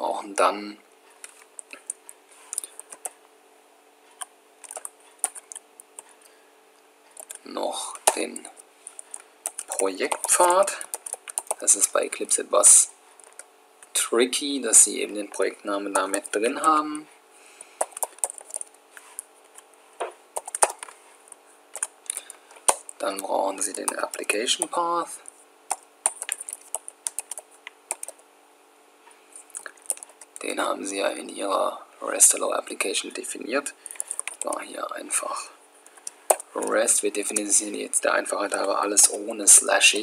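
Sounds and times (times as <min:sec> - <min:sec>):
computer keyboard clicks: 0:04.2 - 0:06.0, 0:07.2 - 0:07.4, 0:09.0 - 0:11.7, 0:17.8 - 0:18.7, 0:20.4 - 0:20.9, 0:21.8 - 0:23.0, 0:25.7 - 0:28.2, 0:29.6 - 0:30.4, 0:33.9 - 0:34.6, 0:35.9 - 0:36.5.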